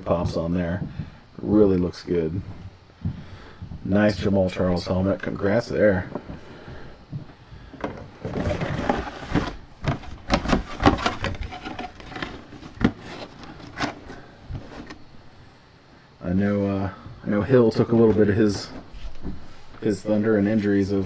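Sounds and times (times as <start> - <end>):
plastic cube sliding into box: 8.2 - 9.6.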